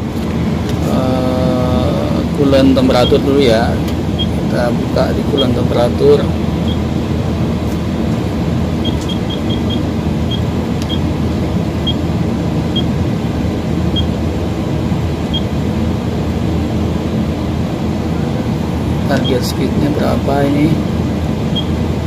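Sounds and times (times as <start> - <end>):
excavator engine running: 0.0 - 22.0
short high electronic beeps: 8.8 - 11.1.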